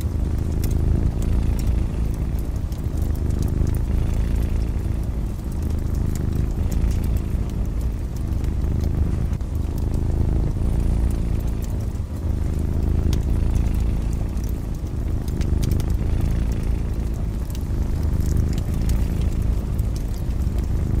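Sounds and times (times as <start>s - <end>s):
cat purring: 0.0s - 21.0s
wood fire crackling: 0.0s - 21.0s.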